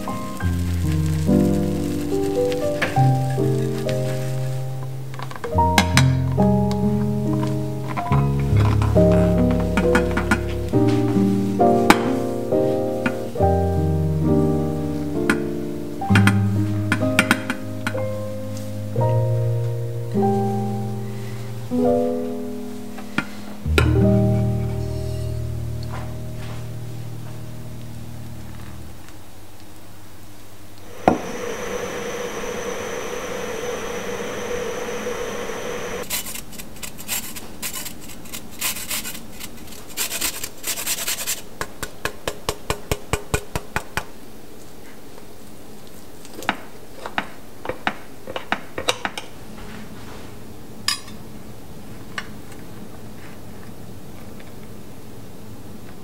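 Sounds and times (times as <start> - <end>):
zest grater scraping: 36.0 - 41.5.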